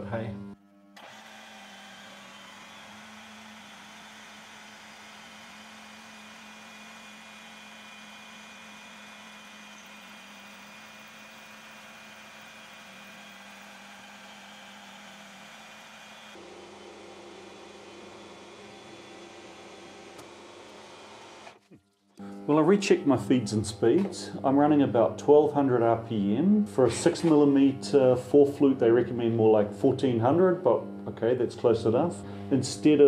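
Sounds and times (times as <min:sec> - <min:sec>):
milling machine humming: 0:01.0 - 0:21.6.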